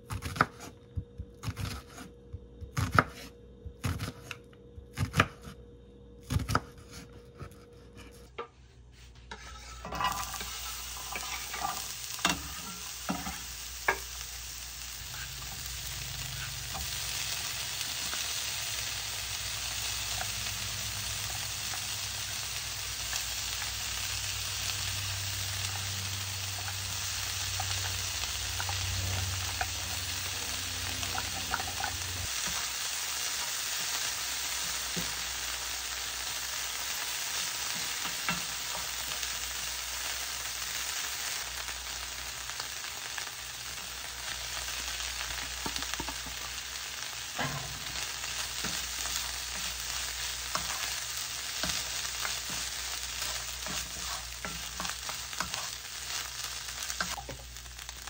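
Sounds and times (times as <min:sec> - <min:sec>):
low hum: 0:03.3 - 0:32.7
wooden spatula scraping pan: 0:07.9 - 0:14.0, 0:51.6 - 0:55.8
food sizzling in frying pan: 0:09.3 - 0:58.0.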